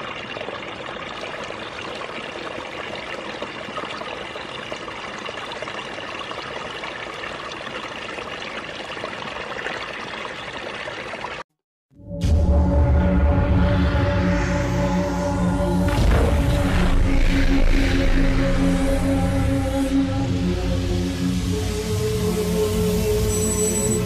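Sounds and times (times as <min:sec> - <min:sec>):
muddy water trickling and splashing: 0:00.0 - 0:11.5.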